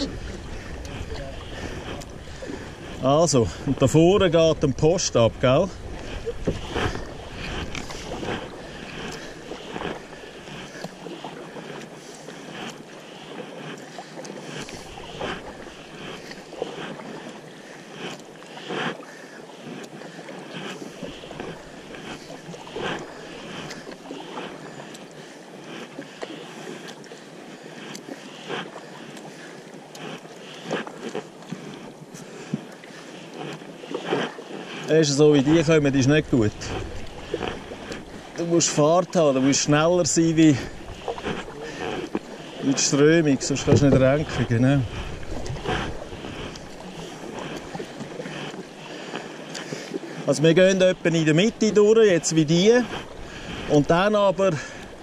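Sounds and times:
wind on microphone: 0.0 - 10.1
paddle stroke splashes: 0.0 - 55.0
rushing river water: 0.0 - 55.0.

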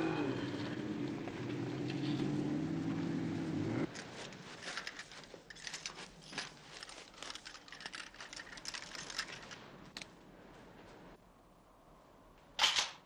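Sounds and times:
small clicks and rustles: 3.9 - 11.0.

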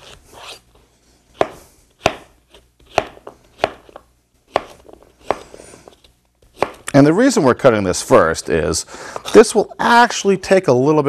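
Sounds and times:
knife chopping on board: 1.4 - 5.6, 6.4 - 6.9.

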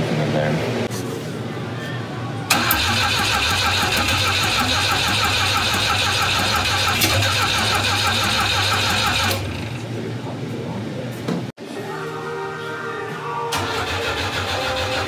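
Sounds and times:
starter motor cranking engine: 2.5 - 9.9, 13.5 - 15.0.

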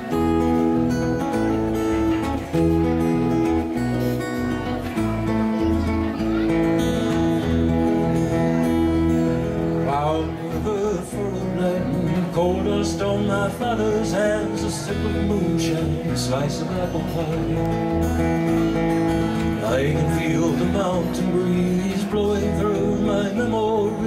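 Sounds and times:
amplified guitar chords: 0.0 - 24.0
man singing: 9.6 - 18.2, 19.4 - 24.0.

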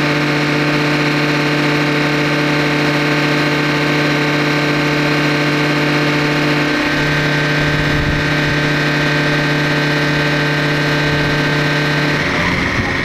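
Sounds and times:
tractor diesel engine running: 0.0 - 13.0
low rumble: 6.7 - 9.5.

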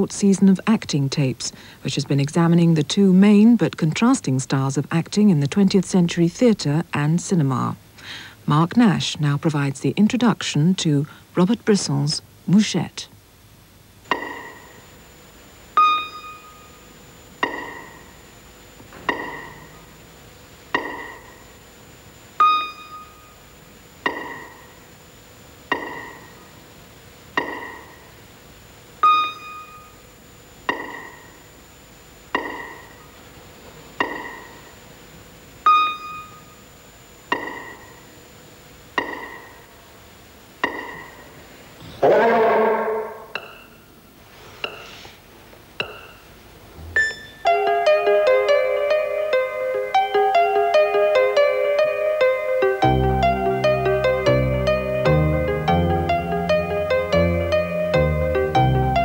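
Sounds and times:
slow keyboard notes: 40.6 - 43.8, 45.8 - 59.0
fuller keyboard chord: 47.5 - 59.0.

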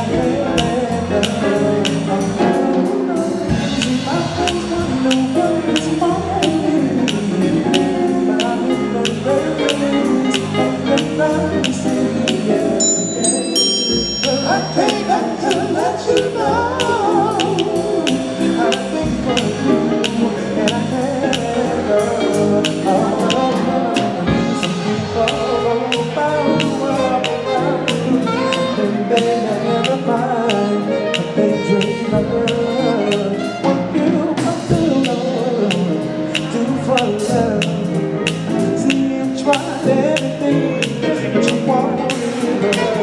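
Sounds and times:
live rock band playing: 0.0 - 43.0
person singing: 0.0 - 43.0.

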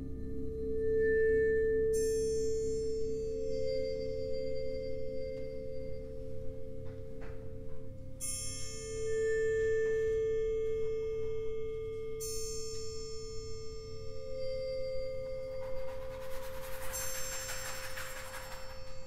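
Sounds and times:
sustained metal ringing tone: 0.0 - 19.0.

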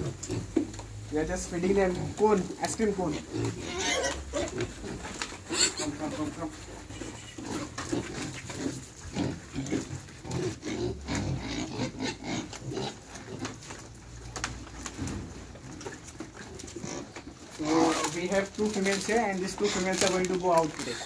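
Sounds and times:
crunching clicks of chewing: 0.0 - 1.0, 6.7 - 21.0
pigs grunting: 0.0 - 21.0.

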